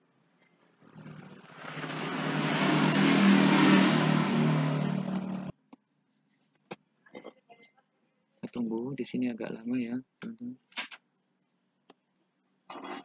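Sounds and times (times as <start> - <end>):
vehicle engine humming: 0.9 - 5.5.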